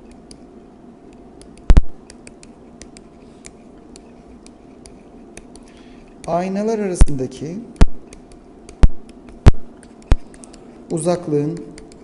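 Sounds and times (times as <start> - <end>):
stylus ticking on pen tablet: 1.4 - 6.4, 8.1 - 12.0.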